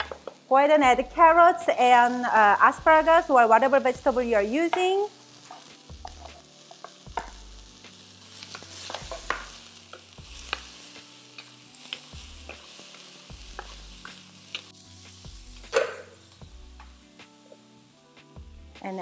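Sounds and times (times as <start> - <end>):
vegetables sizzling in oil: 0.0 - 19.0
spatula clicking and scraping wok: 3.5 - 17.6.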